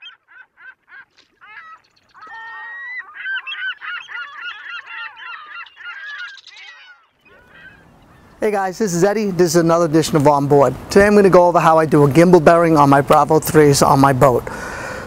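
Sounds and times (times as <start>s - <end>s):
short repeated bird calls: 0.0s - 8.4s
birds calling in chorus: 0.0s - 9.4s.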